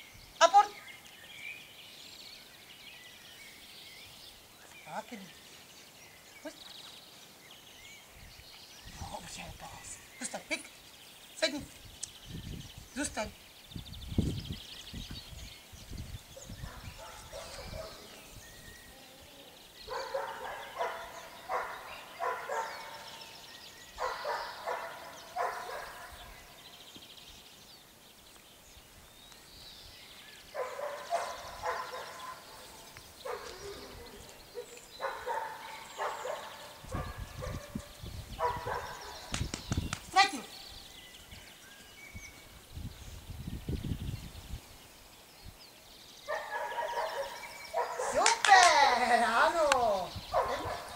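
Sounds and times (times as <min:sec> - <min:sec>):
young dog barking and yipping: 0:16.4 - 0:18.2, 0:19.8 - 0:23.3, 0:23.9 - 0:26.4, 0:30.6 - 0:40.5, 0:46.3 - 0:50.9.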